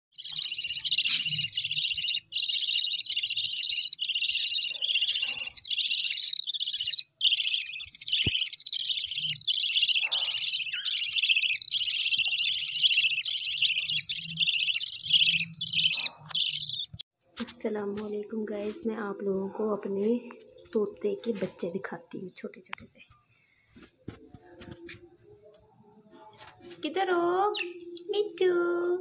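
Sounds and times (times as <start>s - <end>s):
bird chicks chirping: 0.1s - 17.0s, 27.4s - 28.4s.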